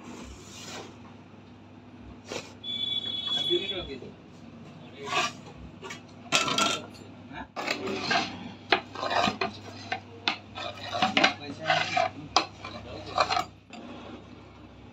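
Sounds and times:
pizza cutter rolling through pizza: 0:04.9 - 0:06.6, 0:07.5 - 0:14.3.

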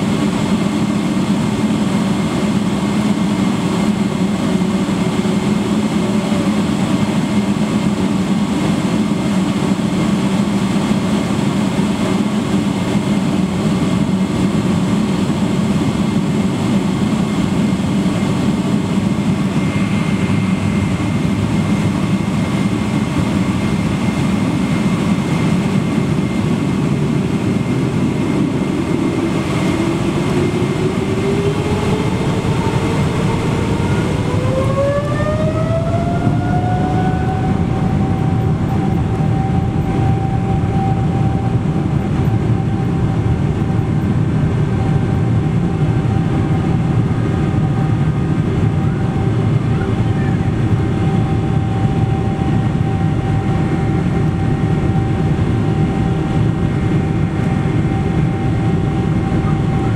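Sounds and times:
jet engines droning in cabin: 0:00.0 - 0:59.9.

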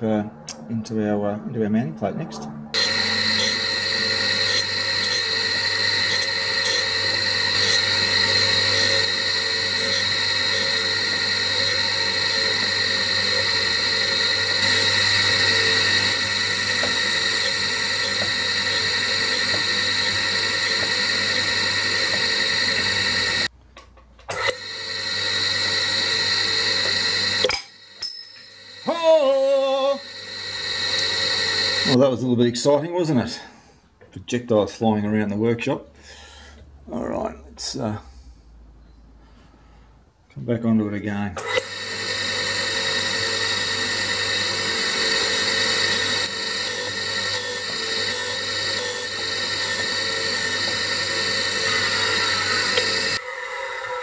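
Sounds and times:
grinding wheel on steel: 0:02.7 - 0:23.5, 0:24.3 - 0:32.0, 0:41.4 - 0:54.0.

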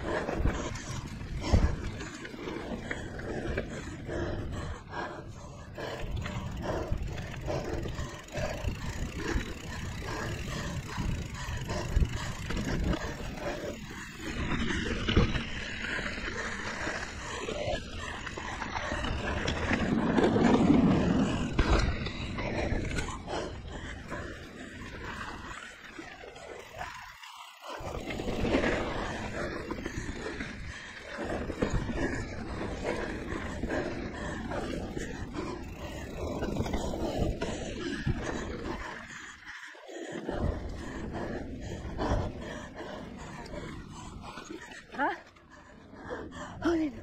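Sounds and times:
tyre and wind rumble: 0:00.0 - 0:25.6.

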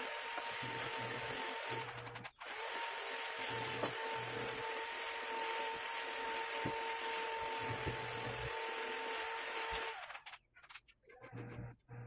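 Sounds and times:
machine hum with whine: 0:11.2 - 0:12.0.

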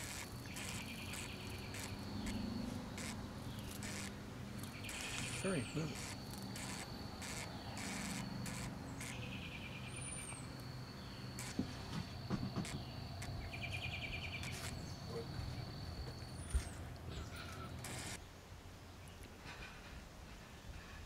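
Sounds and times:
high bird chirp: 0:00.0 - 0:11.7
insect trills: 0:00.0 - 0:18.2
insects buzzing: 0:00.0 - 0:18.2.

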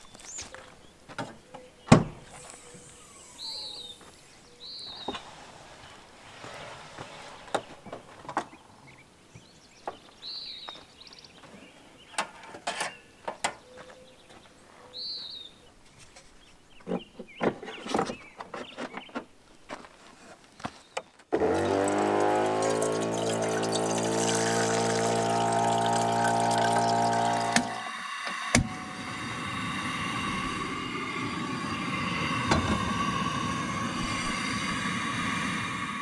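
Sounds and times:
bird chirps: 0:00.0 - 0:05.2, 0:12.9 - 0:19.2
water pump humming: 0:21.3 - 0:36.0
water running into kettle: 0:21.4 - 0:29.1.

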